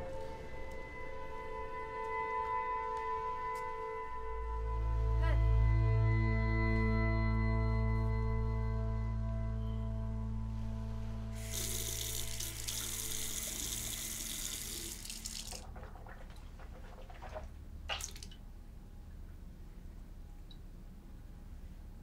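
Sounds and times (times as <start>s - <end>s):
faucet running into sink: 11.4s - 15.7s.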